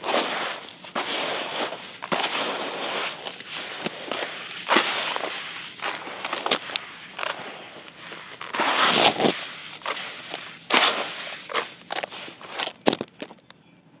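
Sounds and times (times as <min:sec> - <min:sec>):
dry clay crunching as poured: 0:00.0 - 0:13.4.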